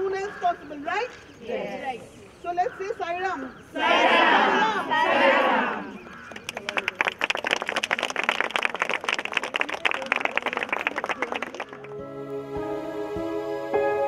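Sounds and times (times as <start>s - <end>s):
people clapping: 5.7s - 12.0s
music with held notes: 11.8s - 14.0s.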